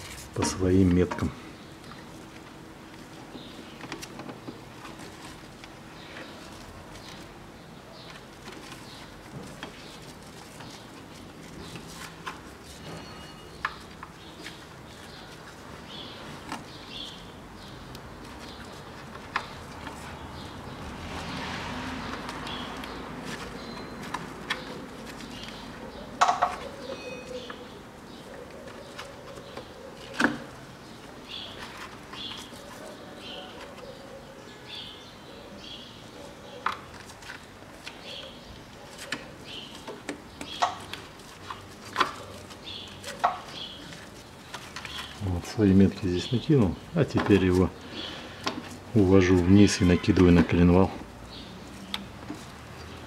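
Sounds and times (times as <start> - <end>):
bird chirping: 12.7 - 53.0.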